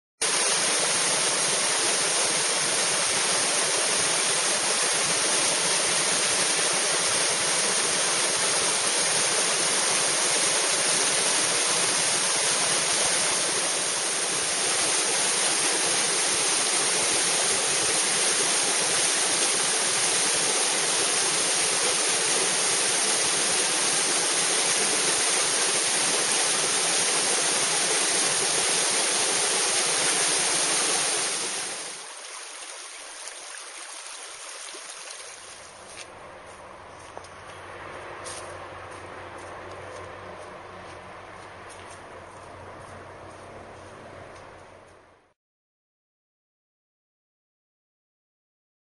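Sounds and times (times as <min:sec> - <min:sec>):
waterfall splashing into pool: 0:00.2 - 0:35.7.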